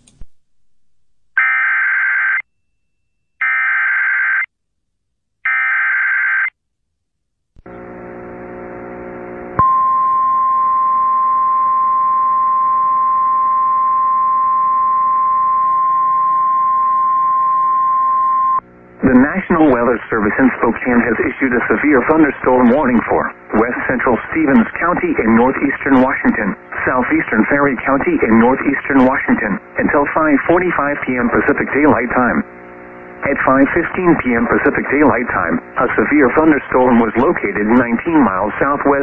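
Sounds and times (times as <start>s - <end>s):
low hum: 7.6s - 30.2s
steady single-pitch attention tone: 9.6s - 18.6s.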